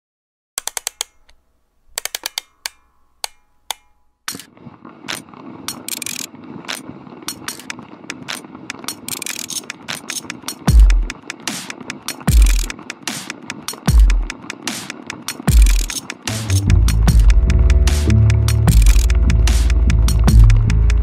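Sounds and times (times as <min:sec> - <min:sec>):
background music with clicking percussion: 0:07.3 - 0:21.0
deep bass hit: 0:16.5 - 0:21.0.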